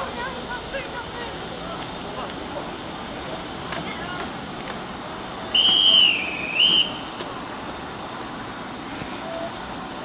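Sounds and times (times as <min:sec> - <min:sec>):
whistle blowing: 0:05.5 - 0:07.2.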